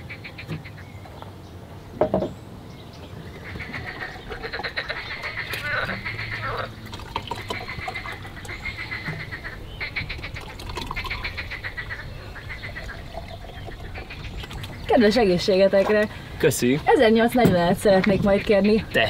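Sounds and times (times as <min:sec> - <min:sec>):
liquid pouring and gurgling: 0:06.6 - 0:09.0, 0:10.1 - 0:11.6, 0:12.3 - 0:14.9
soda water fizzing: 0:06.8 - 0:08.6, 0:10.1 - 0:11.4.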